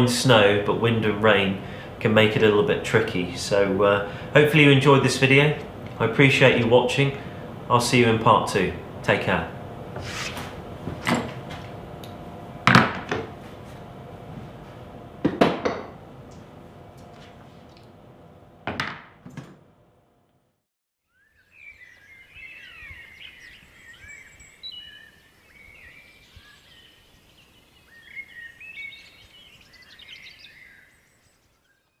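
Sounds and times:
sharp knocks: 15.2s - 16.0s
small birds chirping and whistling: 21.0s - 32.0s.

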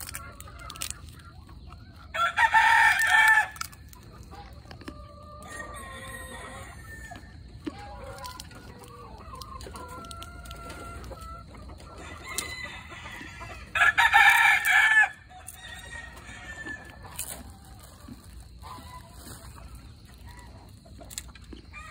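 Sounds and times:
chickens clucking: 0.0s - 21.9s
rooster crowing: 2.1s - 3.6s, 5.5s - 7.3s, 12.0s - 17.0s.

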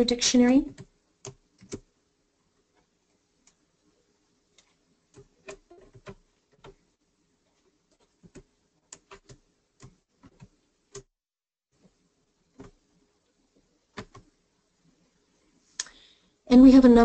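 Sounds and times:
keyboard typing: 0.4s - 1.9s, 4.5s - 6.9s, 7.5s - 11.1s, 12.5s - 12.9s, 13.9s - 14.3s.

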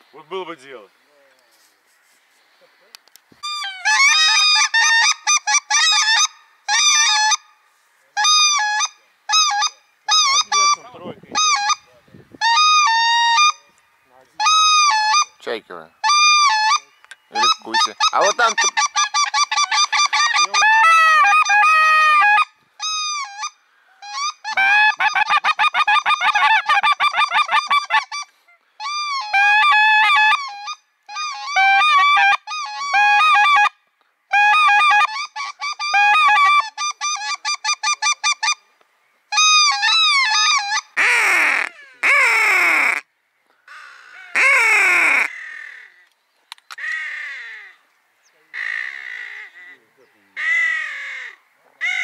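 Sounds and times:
geese honking: 8.2s - 38.7s, 39.3s - 43.0s, 43.7s - 45.9s.

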